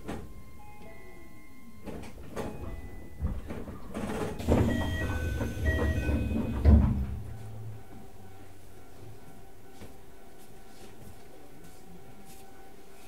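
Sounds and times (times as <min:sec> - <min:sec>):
train car low hum: 0:00.0 - 0:13.0
sliding doors thudding: 0:03.2 - 0:07.4.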